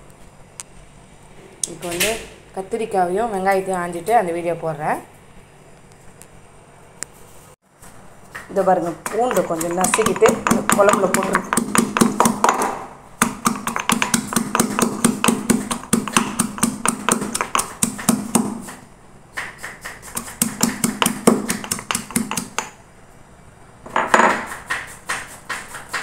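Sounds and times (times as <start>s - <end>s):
garlic being pounded: 8.3s - 18.8s, 19.4s - 22.8s.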